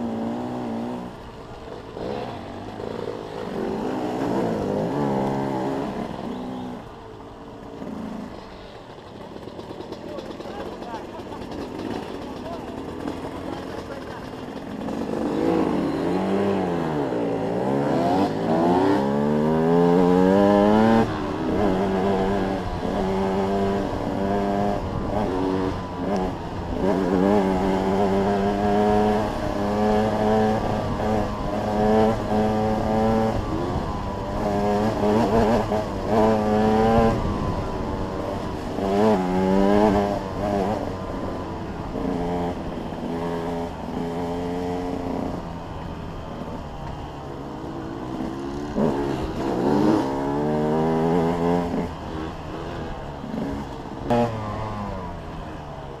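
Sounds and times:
dirt bike engine revving: 0.0 - 7.2, 7.8 - 56.0.

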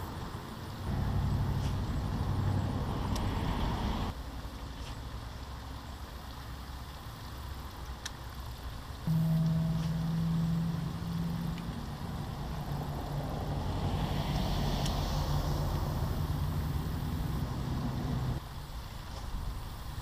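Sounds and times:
low outdoor rumbling: 0.0 - 18.4
steady motor hum: 9.1 - 14.5.

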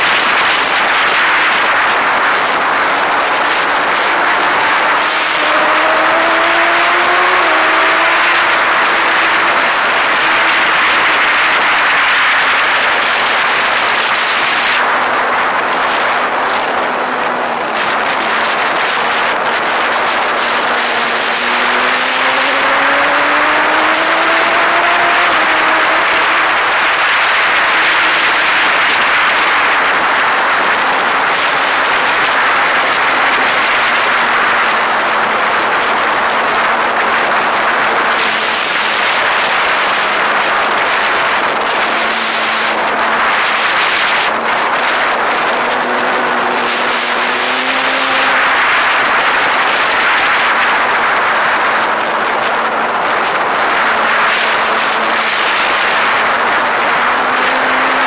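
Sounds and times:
rushing noise of travel: 0.0 - 58.0
vehicle engine running: 2.0 - 49.8.

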